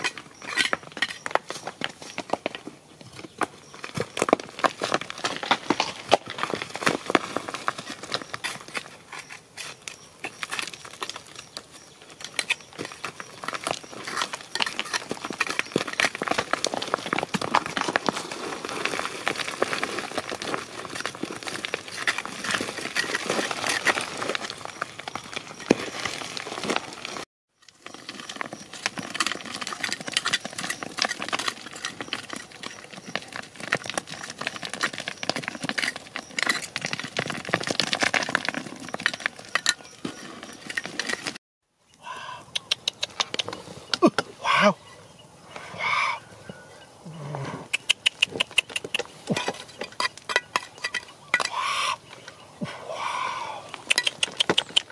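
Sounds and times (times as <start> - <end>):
digging tool scraping stony soil: 0.0 - 41.4.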